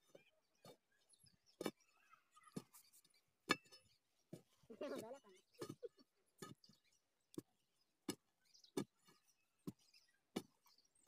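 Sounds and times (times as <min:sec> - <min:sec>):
digging bar striking soil: 0:07.4 - 0:10.8.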